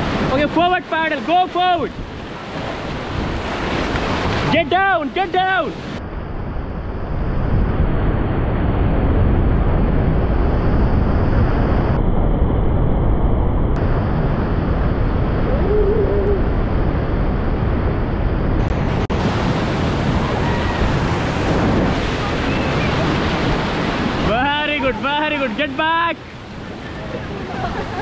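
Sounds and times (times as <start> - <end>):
wind buffeting microphone: 5.8 - 25.6
whitewater rapids rushing: 19.2 - 28.0.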